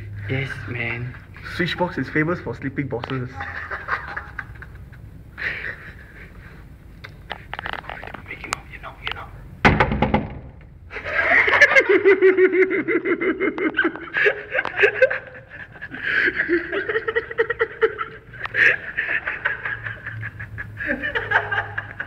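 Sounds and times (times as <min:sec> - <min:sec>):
people giggling: 0:03.2 - 0:06.6, 0:10.9 - 0:22.0.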